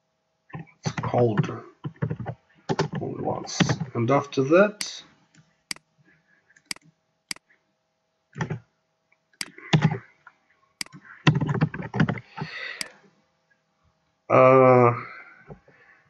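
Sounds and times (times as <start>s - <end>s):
faint steady hum: 0.0s - 16.0s
keyboard and mouse clicks: 0.9s - 3.0s, 8.4s - 8.6s, 9.4s - 10.0s, 10.8s - 13.0s.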